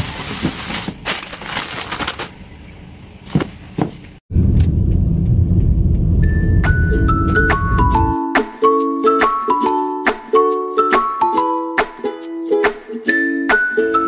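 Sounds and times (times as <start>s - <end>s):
plastic bags crinkling: 0.0s - 2.5s
car interior road rumble: 4.3s - 8.1s.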